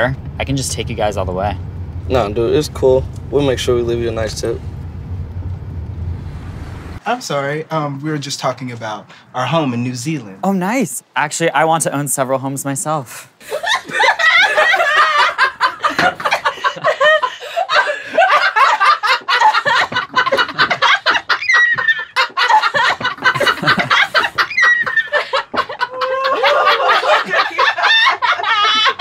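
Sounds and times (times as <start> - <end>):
group of people laughing: 13.4 - 29.0
high falling squeals: 21.0 - 22.2, 24.2 - 25.3.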